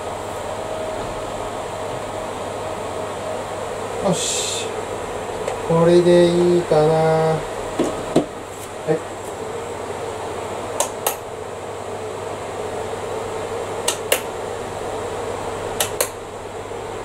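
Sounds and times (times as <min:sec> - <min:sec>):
electric fan whirring: 0:00.0 - 0:17.0
pull-cord switch clicks: 0:10.8 - 0:11.2, 0:13.8 - 0:14.3, 0:15.8 - 0:16.2.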